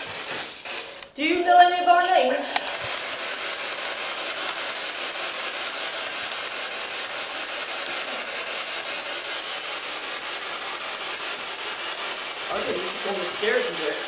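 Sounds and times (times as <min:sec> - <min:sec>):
radio static hiss: 0:12.4 - 0:14.0.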